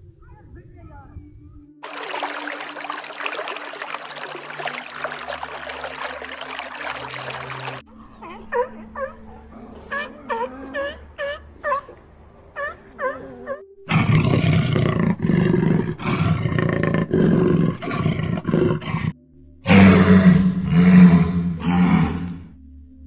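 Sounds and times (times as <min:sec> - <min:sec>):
big cat roaring growl: 0:12.9 - 0:22.5.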